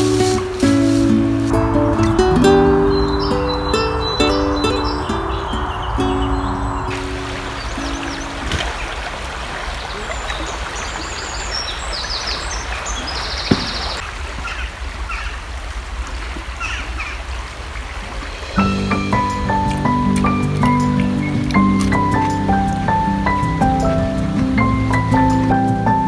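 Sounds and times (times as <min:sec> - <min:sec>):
music: 0:00.0 - 0:08.6, 0:18.6 - 0:26.0
stream running: 0:00.0 - 0:26.0
bird trill: 0:02.4 - 0:09.0
small birds chirping: 0:02.4 - 0:15.4, 0:18.6 - 0:24.0.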